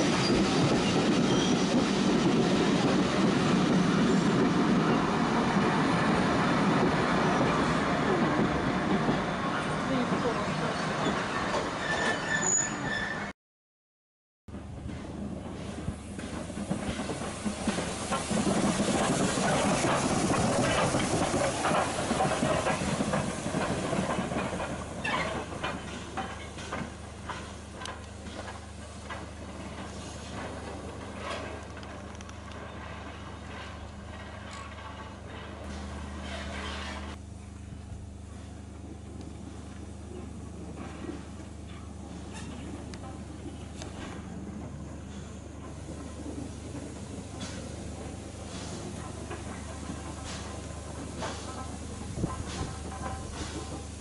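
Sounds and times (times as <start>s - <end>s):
steam locomotive passing: 0.0s - 13.3s, 14.5s - 54.0s
train wheels rumbling on rails: 0.0s - 13.3s, 14.5s - 54.0s
steam hissing: 15.1s - 34.4s, 39.4s - 54.0s.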